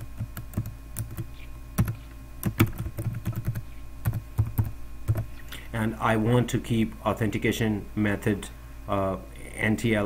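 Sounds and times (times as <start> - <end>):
typing on computer keyboard: 0.2 - 5.2.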